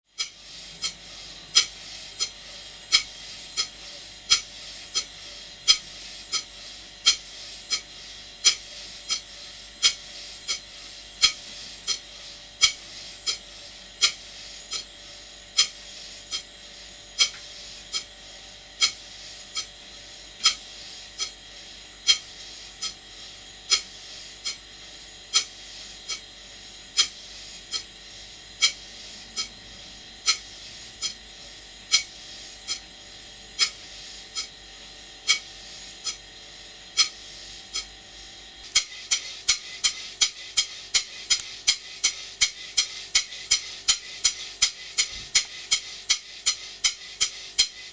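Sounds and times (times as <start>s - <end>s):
steam hissing: 38.6s - 47.9s.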